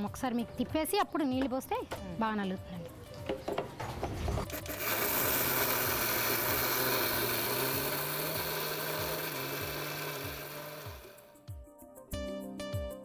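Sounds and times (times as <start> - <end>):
mixer grinder whirring: 4.4 - 11.3.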